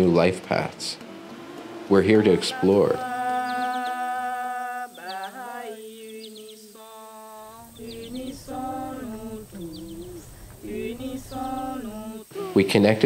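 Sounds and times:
low musical accompaniment: 0.0 - 4.0, 7.6 - 13.0
slow singing: 0.0 - 13.0.

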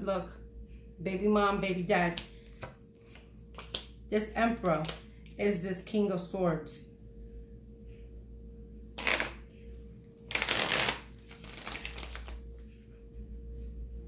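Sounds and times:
cards riffle shuffling: 10.3 - 12.4
cards rustling: 10.3 - 12.8.

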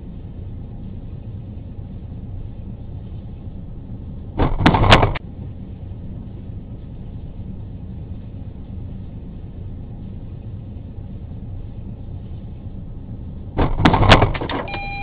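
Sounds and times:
low rumble: 0.0 - 15.0.

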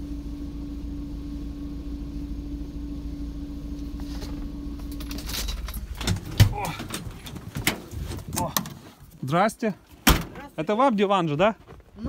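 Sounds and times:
engine idling inside cabin: 0.0 - 9.0.

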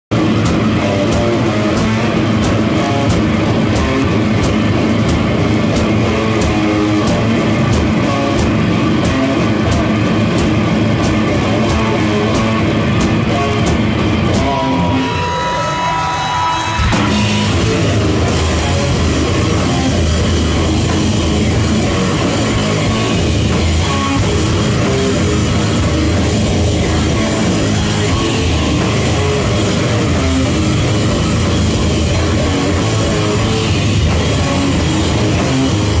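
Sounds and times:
distorted electric guitar: 0.0 - 36.0
drum kit with crashing cymbals: 0.1 - 15.3, 16.6 - 36.0.

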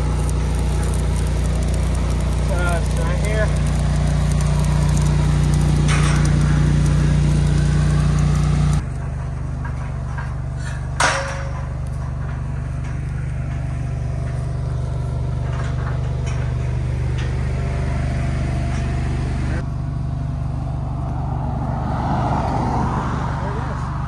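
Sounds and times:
welding arc crackling: 0.0 - 9.6
engine idling: 0.0 - 21.2
metal clank ringing: 5.8 - 6.7, 9.1 - 13.7.

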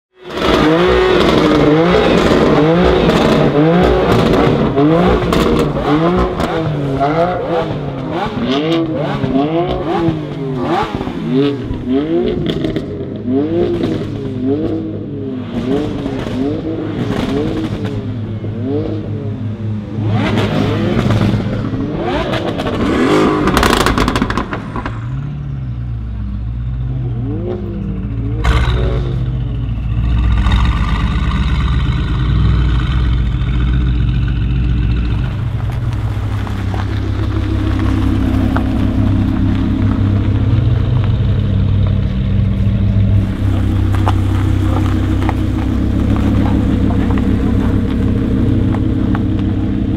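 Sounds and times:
car engine revving: 0.2 - 49.9
exhaust crackles: 0.3 - 14.9, 20.1 - 49.9
sharp exhaust pop: 28.4 - 29.3.

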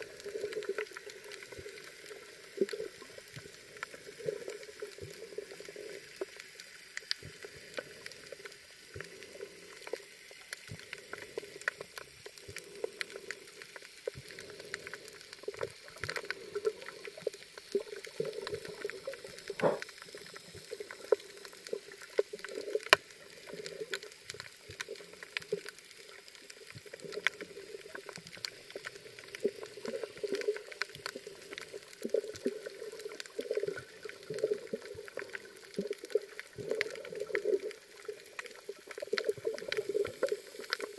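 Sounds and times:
sharp underwater clicks and crackles: 0.0 - 40.9
underwater water sloshing: 13.8 - 40.9.

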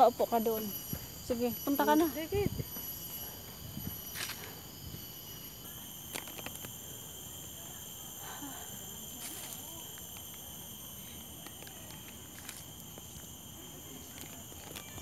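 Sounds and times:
high-pitched insect drone: 0.0 - 15.0.

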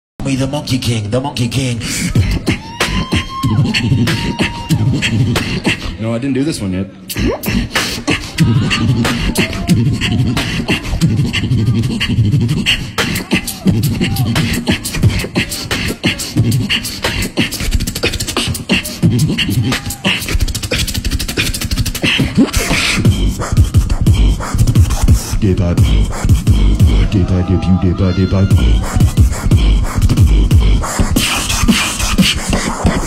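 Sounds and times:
beatboxing into a microphone: 0.2 - 33.0
deep bass: 7.2 - 15.4, 21.8 - 31.3.

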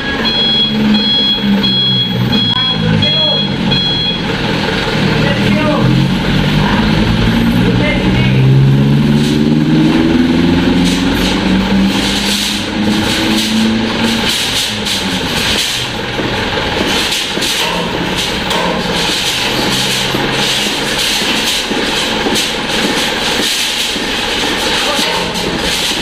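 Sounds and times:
diesel engine running: 0.0 - 26.0
irregular clattering: 8.8 - 26.0.

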